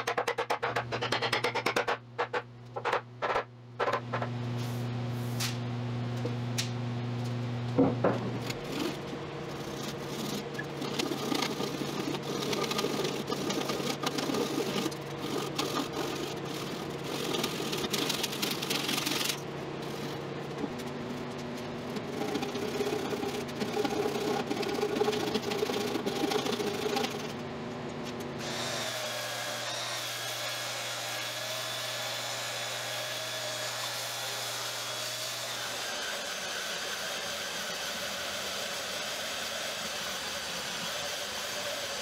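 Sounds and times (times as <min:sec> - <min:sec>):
power tool motor buzzing: 0:28.4 - 0:42.0.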